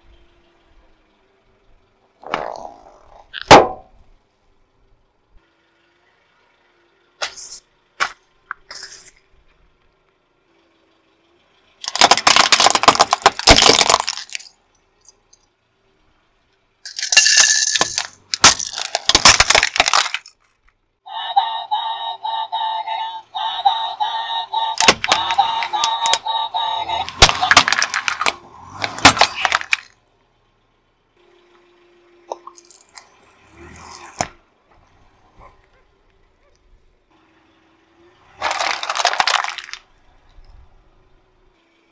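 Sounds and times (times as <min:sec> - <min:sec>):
objects crunching under car tyre: 0:11.8 - 0:14.5, 0:16.9 - 0:20.7, 0:24.8 - 0:26.2, 0:26.8 - 0:30.0, 0:38.2 - 0:39.9
toy playing electronic tune: 0:21.1 - 0:27.6.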